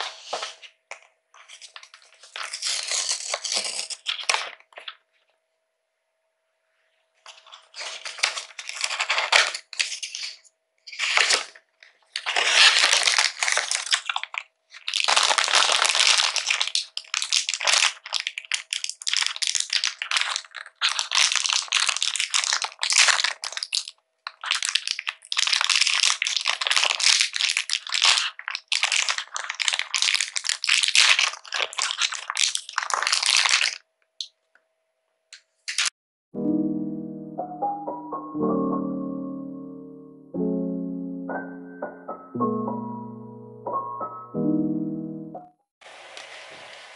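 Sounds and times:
plastic bag crinkling: 1.4 - 5.0, 7.3 - 33.8
cardboard box being torn open: 2.2 - 4.4.

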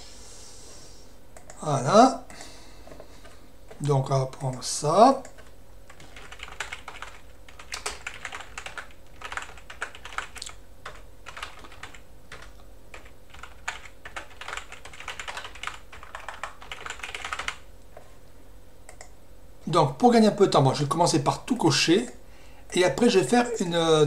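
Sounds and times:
typing on computer keyboard: 5.2 - 17.6.

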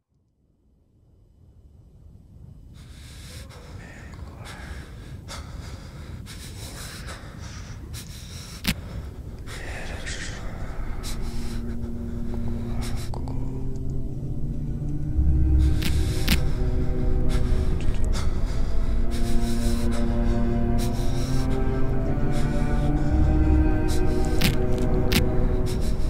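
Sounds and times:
low held notes: 8.4 - 26.0
low rumble: 8.8 - 26.0.

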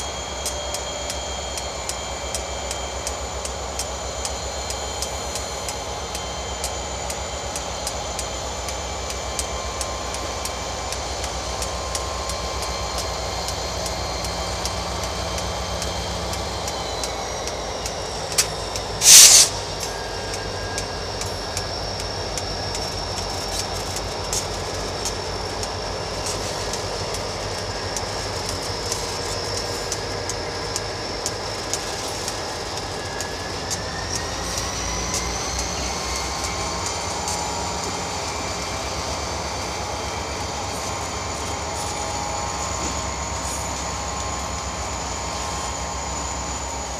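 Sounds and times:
diesel engine drone: 0.0 - 46.9
locomotive high whine: 0.0 - 46.9
wheels clicking over rail joints: 7.8 - 44.4
loud air hiss: 18.4 - 20.1.

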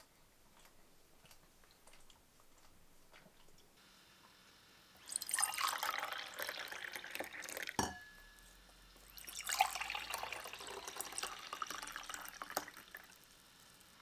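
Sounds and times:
drink pouring into glass: 5.0 - 8.0, 9.1 - 13.2.

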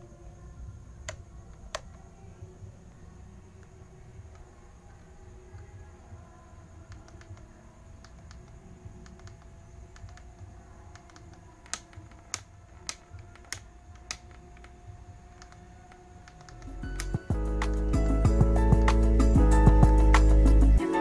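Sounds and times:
handlebar switch clicking: 6.9 - 17.8.

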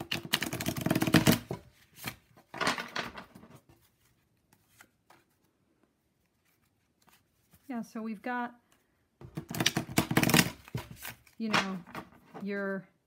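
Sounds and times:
cards riffle-shuffled: 0.0 - 2.5, 8.7 - 12.1.

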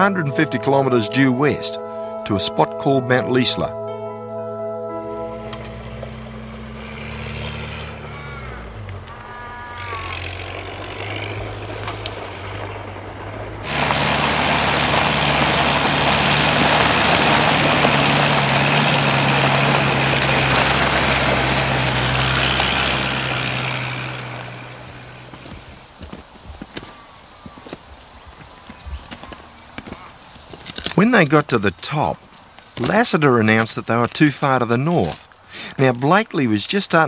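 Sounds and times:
vehicle engine running: 3.7 - 26.2
tyres crunching over loose rock: 9.9 - 36.4.

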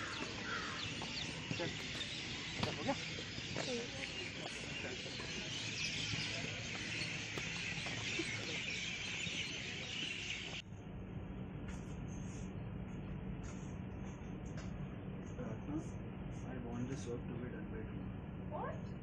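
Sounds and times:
insects chirring: 0.0 - 10.6
low steady hum: 0.0 - 19.0.

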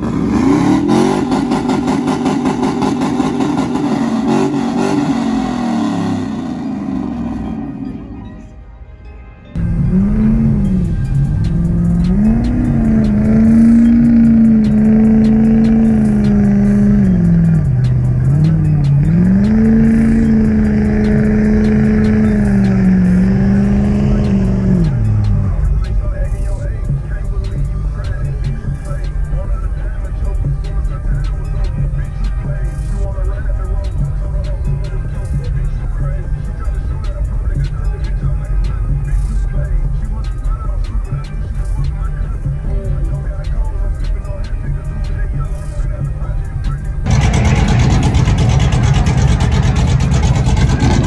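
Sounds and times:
truck engine revving: 0.0 - 8.2, 9.6 - 35.7, 46.7 - 51.0
spinning tyres hissing: 9.6 - 25.8, 47.1 - 51.0.

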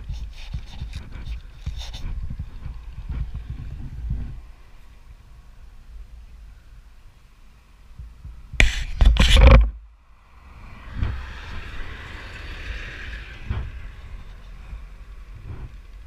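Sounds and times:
rustling and knocking on microphone: 0.0 - 4.4, 8.0 - 9.8, 13.4 - 13.8, 15.4 - 16.0
wind noise: 0.0 - 16.0
motorcycle riding: 9.2 - 16.0.

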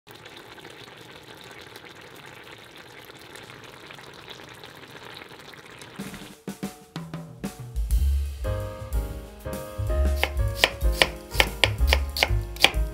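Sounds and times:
sauce sizzling and bubbling in a pan: 0.1 - 6.4.

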